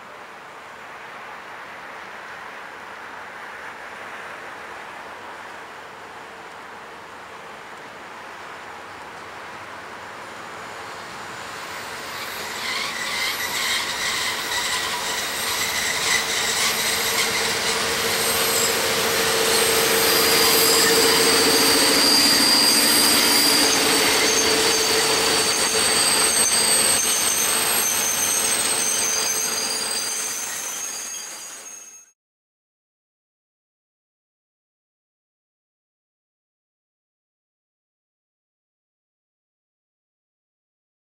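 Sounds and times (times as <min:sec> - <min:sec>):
diesel locomotive engine running: 0:09.2 - 0:31.8
wagon wheels squealing: 0:10.7 - 0:32.1
wagons clattering on rails: 0:12.0 - 0:31.8.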